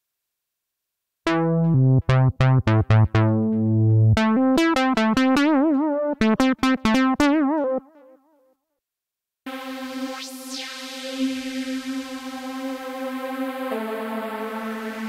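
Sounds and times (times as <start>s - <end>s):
synthesizer lead notes: 1.3s - 8.2s.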